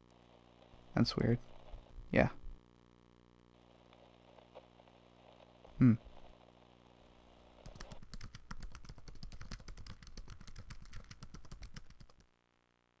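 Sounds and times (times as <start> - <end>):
rapid sharp clicks: 7.6 - 12.3.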